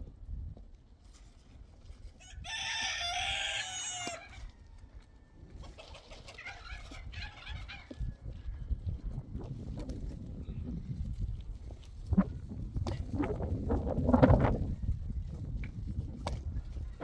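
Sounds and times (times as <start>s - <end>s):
rooster crowing: 2.2s - 5.4s.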